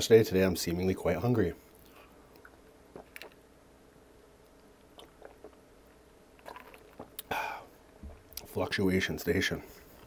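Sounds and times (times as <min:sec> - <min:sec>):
person drinking and swallowing: 0:01.8 - 0:03.4, 0:04.9 - 0:05.7, 0:06.4 - 0:08.4
breathy exhale: 0:07.3 - 0:07.7.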